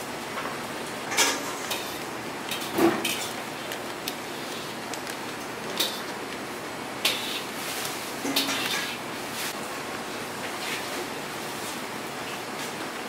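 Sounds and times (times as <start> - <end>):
kitchen background noise: 0.0 - 13.0
metal tongs clinking on steel plates: 8.2 - 9.0.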